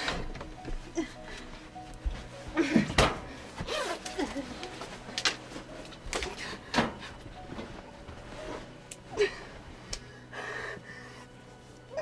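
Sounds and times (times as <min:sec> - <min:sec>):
woman breathing hard: 0:00.0 - 0:01.8, 0:09.1 - 0:11.4.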